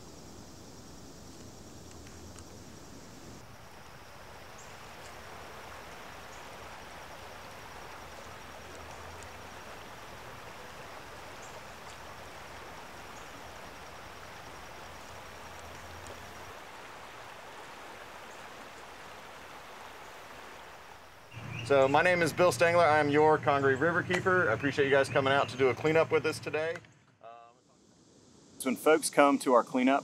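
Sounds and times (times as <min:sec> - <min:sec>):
even rushing hiss: 0:00.0 - 0:30.0.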